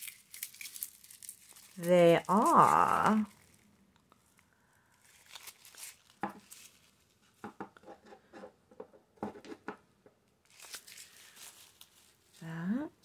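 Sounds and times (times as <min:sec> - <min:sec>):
tissue paper rustling: 0:00.0 - 0:07.4, 0:10.4 - 0:12.5.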